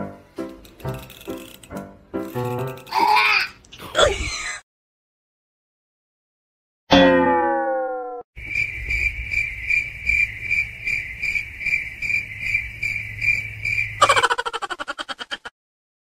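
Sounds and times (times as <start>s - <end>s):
cricket chirping: 8.4s - 15.1s.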